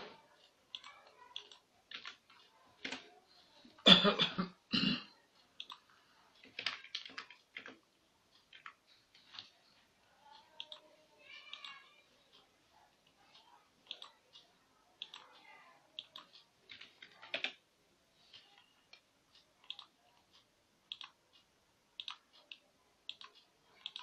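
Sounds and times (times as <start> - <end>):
computer mouse clicks: 0.4 - 3.1, 5.6 - 7.8, 8.4 - 9.5, 10.3 - 11.8, 13.0 - 17.6, 18.4 - 21.2, 22.0 - 24.0
person coughing: 3.9 - 5.1.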